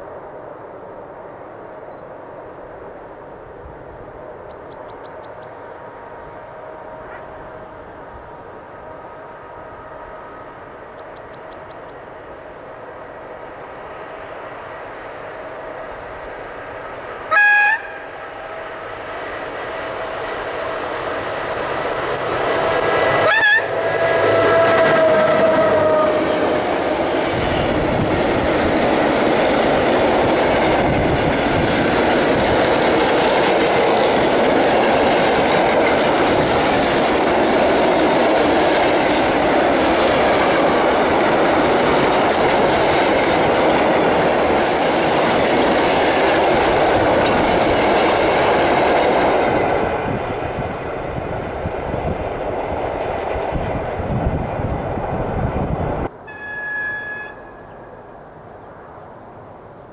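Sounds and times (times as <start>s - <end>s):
freight train wheels rumbling: 0.0s - 59.5s.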